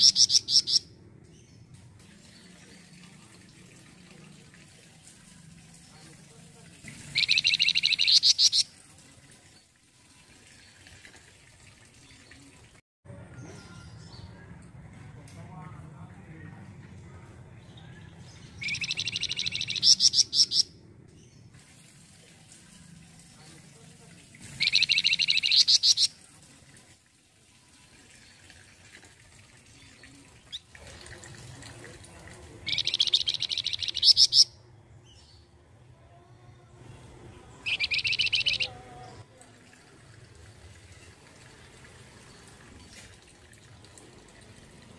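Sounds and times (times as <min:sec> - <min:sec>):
songbird rapid trill: 0:07.1 - 0:08.7, 0:18.6 - 0:20.7, 0:24.6 - 0:26.1, 0:32.6 - 0:34.5, 0:37.6 - 0:38.8.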